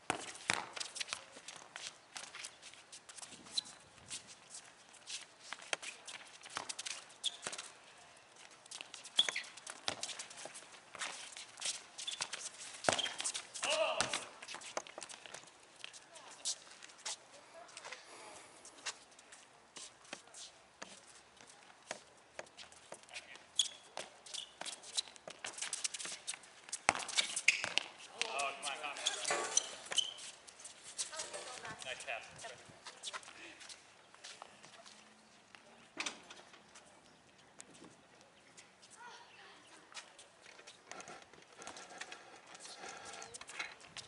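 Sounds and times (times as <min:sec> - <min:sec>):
soccer ball kicked and bouncing: 0:00.0 - 0:02.4, 0:08.9 - 0:11.2, 0:12.1 - 0:15.4, 0:23.3 - 0:30.2
soccer ball kicks: 0:00.1 - 0:00.8
short high squeaks: 0:03.4 - 0:03.8, 0:06.7 - 0:07.7, 0:09.0 - 0:09.7, 0:11.1 - 0:13.4, 0:23.5 - 0:26.2, 0:27.1 - 0:27.9, 0:29.0 - 0:31.6.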